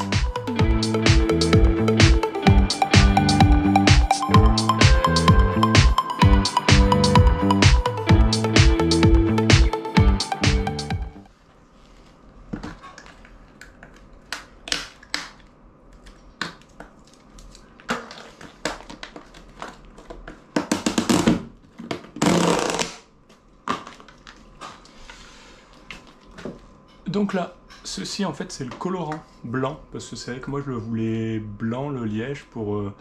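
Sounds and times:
rustling scrape: 0:11.3 - 0:13.0.

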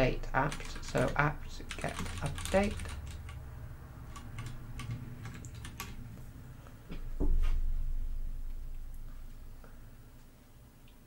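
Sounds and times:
low rumble: 0:02.8 - 0:10.6
keyboard typing clicks: 0:04.1 - 0:06.0
dull low thump: 0:07.0 - 0:09.2.

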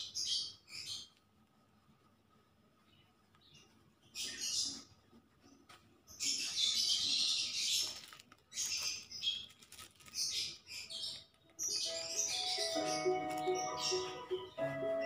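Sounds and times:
stuffing rustling and crunching: 0:07.6 - 0:13.8.

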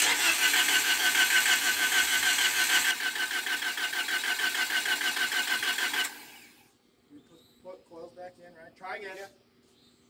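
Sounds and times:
starter motor cranking engine: 0:00.0 - 0:06.6.

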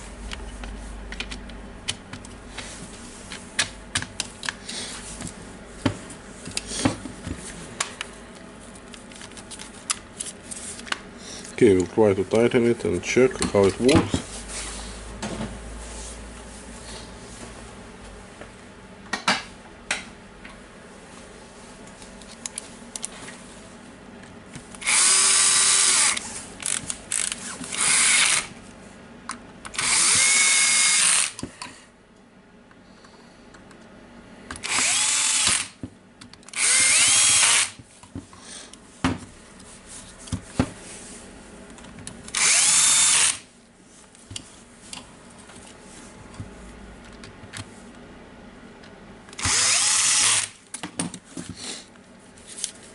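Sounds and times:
cordless drill whining: 0:24.8 - 0:28.5, 0:29.8 - 0:31.4, 0:34.6 - 0:35.8, 0:36.6 - 0:37.8, 0:42.3 - 0:43.4, 0:49.4 - 0:50.6.

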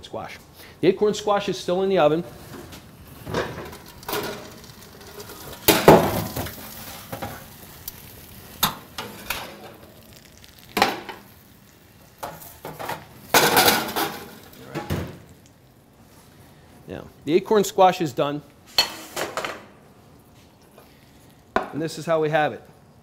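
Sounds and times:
metal cookware clattering: 0:03.2 - 0:06.6, 0:12.2 - 0:15.0, 0:18.7 - 0:19.7
pans rattling: 0:03.2 - 0:07.5, 0:12.2 - 0:15.2.

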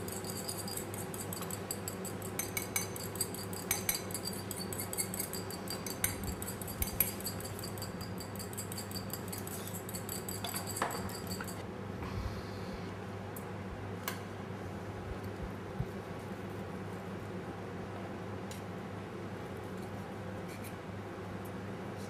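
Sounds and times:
fork clicking against glass bowl: 0:00.0 - 0:11.6.

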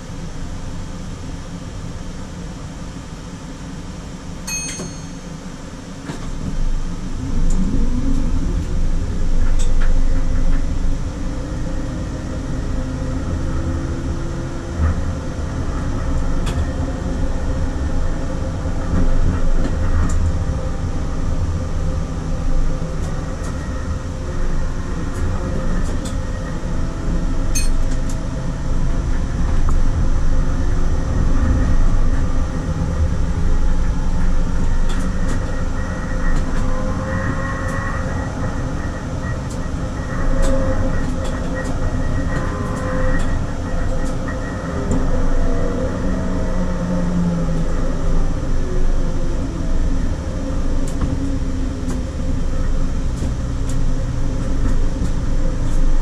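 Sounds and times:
high tone: 0:04.5 - 0:05.3, 0:27.6 - 0:27.8
tram wheels rumbling on rails: 0:04.6 - 0:56.0.

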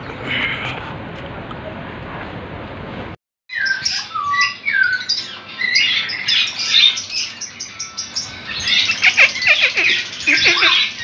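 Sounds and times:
songbirds calling and singing: 0:03.5 - 0:11.0.

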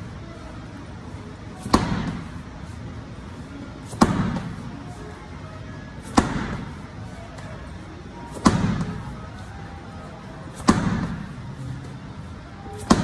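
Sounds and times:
ball thudding on rubber floor: 0:01.6 - 0:02.2, 0:03.9 - 0:04.6, 0:06.0 - 0:06.8, 0:08.3 - 0:09.1, 0:10.5 - 0:11.3, 0:12.8 - 0:13.0.

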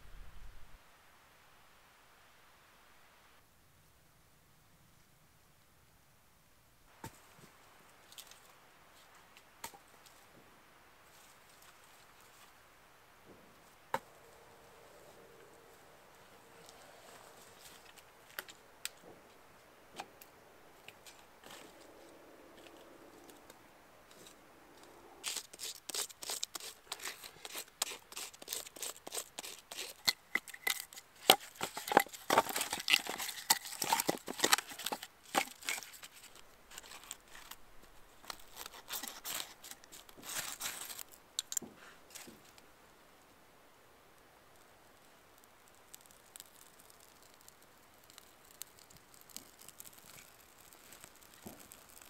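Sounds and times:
sticks snapping and cracking: 0:28.4 - 0:37.6.

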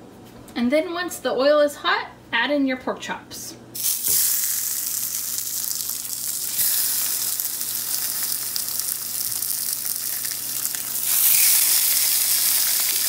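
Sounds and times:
pork chops sizzling in oil: 0:03.8 - 0:13.0.

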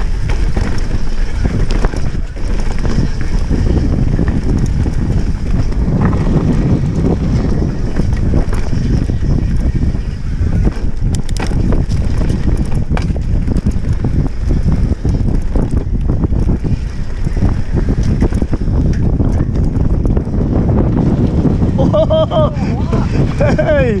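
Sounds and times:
bike rattling over bumps: 0:00.0 - 0:24.0
bike tyres rolling on dirt: 0:00.0 - 0:24.0
wind buffeting microphone: 0:00.0 - 0:24.0.

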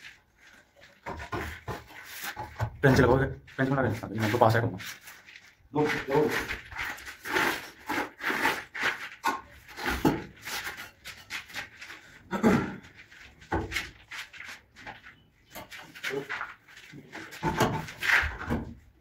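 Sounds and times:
stone knocking and scraping: 0:00.8 - 0:03.2, 0:05.8 - 0:12.0, 0:12.8 - 0:18.9.

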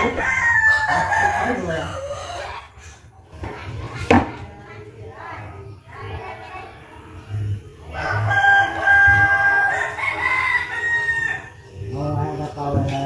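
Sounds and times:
rooster crowing: 0:00.0 - 0:02.7, 0:07.9 - 0:11.7.

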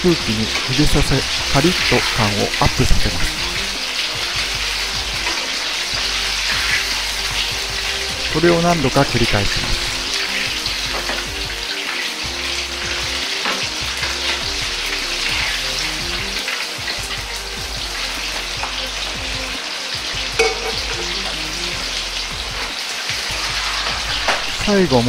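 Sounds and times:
oil sizzling and bubbling: 0:00.0 - 0:25.0
metal clink: 0:20.4 - 0:21.0.

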